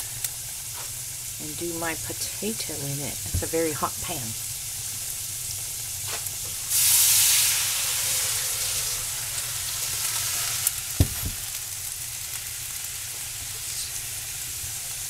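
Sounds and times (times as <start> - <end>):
water sizzling in hot skillet: 0.0 - 15.0
skillet thumping on stove: 3.3 - 3.6, 11.0 - 11.5.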